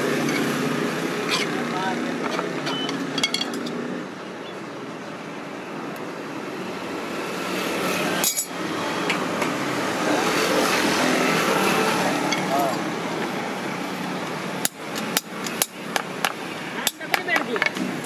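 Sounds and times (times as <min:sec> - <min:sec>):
steady background noise: 0:00.0 - 0:18.0
metal tools clinking: 0:02.2 - 0:03.8, 0:08.2 - 0:08.6.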